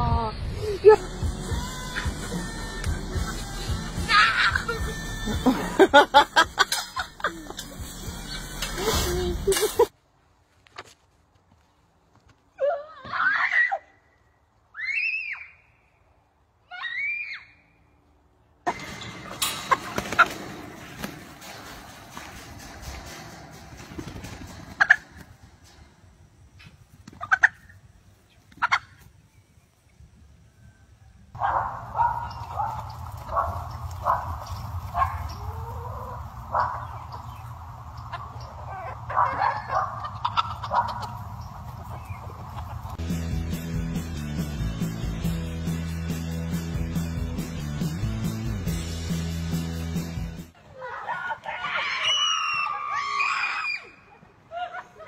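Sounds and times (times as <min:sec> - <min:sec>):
chickens rustling against wire mesh: 0:18.7 - 0:29.2, 0:31.5 - 0:43.0
steady low rumble: 0:31.4 - 0:45.5.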